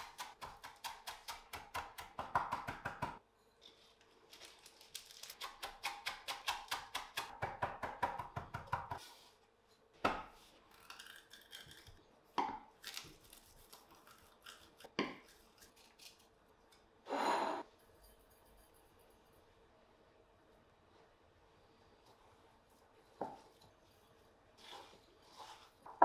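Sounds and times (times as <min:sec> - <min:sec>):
knife chopping greens on wood: 0:00.0 - 0:03.2, 0:05.4 - 0:09.0.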